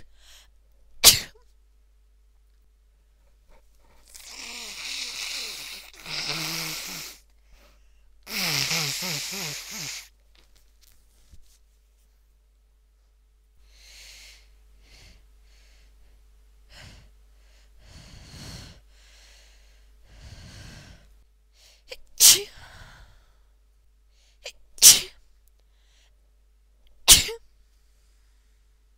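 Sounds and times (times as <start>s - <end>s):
woman sneezing: 1.0s - 1.4s, 8.3s - 10.1s, 21.9s - 22.6s, 24.4s - 25.2s, 27.1s - 27.4s.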